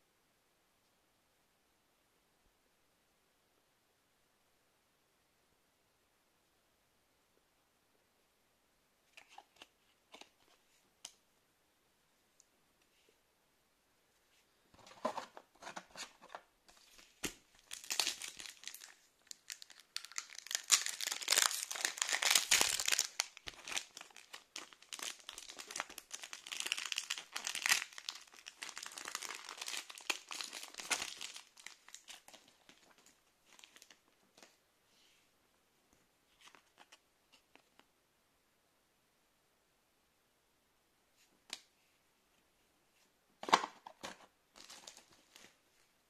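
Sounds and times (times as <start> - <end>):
foil wrapper crinkling and tearing: 17.2 - 34.0.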